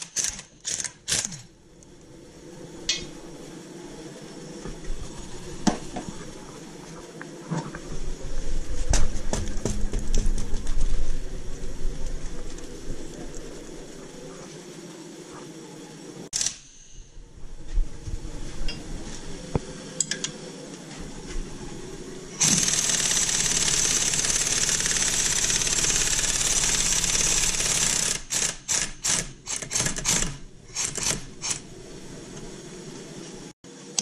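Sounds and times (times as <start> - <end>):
impact wrench running: 22.4 - 31.6.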